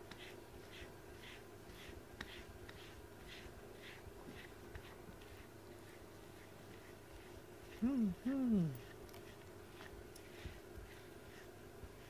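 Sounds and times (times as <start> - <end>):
brush swishing through fur: 0.0 - 12.0.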